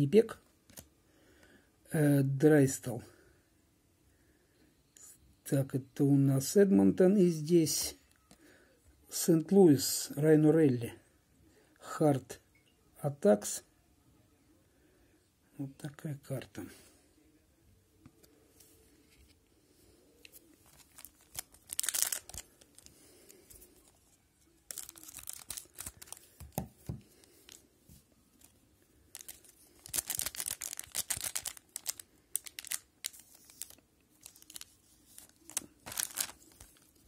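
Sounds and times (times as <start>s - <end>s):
cards rustling: 20.2s - 37.0s
card pack wrapper tearing: 20.6s - 22.9s, 24.7s - 26.6s, 29.1s - 37.0s.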